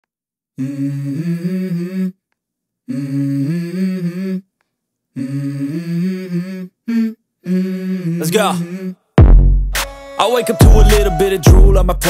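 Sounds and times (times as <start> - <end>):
person humming two-note phrase: 10.2 - 11.8.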